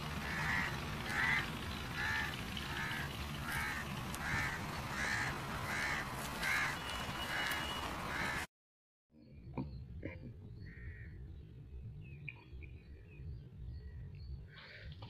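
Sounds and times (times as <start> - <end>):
crow cawing: 0.2 - 8.5.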